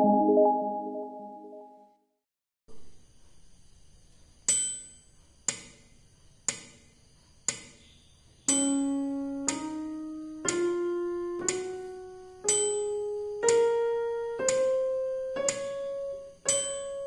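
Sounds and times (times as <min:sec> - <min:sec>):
keyboard notes held: 0:00.0 - 0:01.8
metronome clicks: 0:08.5 - 0:11.8, 0:12.4 - 0:17.0.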